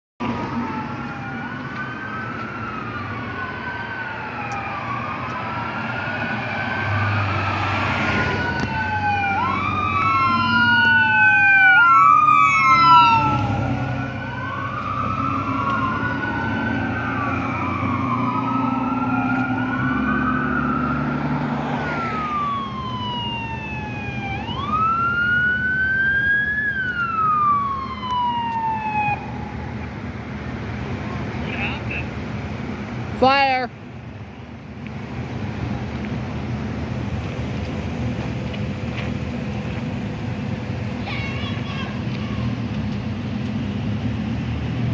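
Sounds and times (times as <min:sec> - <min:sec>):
rapid siren yelp: 0:00.2 - 0:29.9
emergency vehicle sirens wailing: 0:00.2 - 0:44.9
fire engine rumble: 0:00.2 - 0:44.9.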